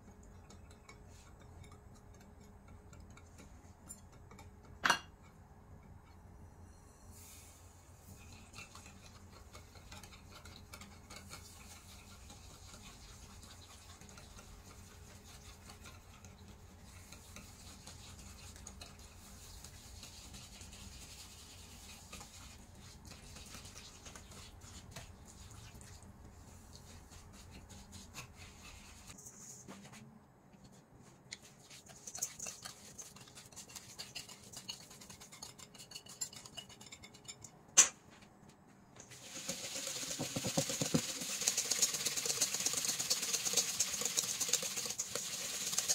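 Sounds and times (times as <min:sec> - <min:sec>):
whisk scratching in glass dish: 0:00.0 - 0:06.2, 0:07.4 - 0:29.6, 0:31.4 - 0:37.4, 0:39.2 - 0:45.9.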